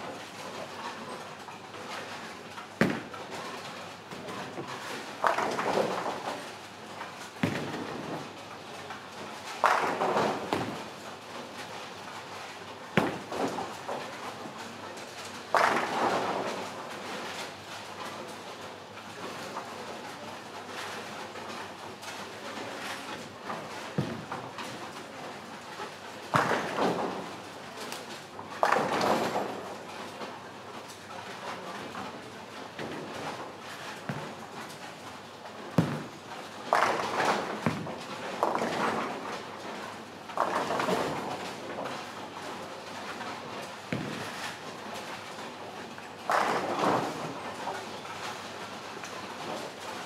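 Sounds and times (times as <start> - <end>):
bowling hall hum: 19.2 - 50.0.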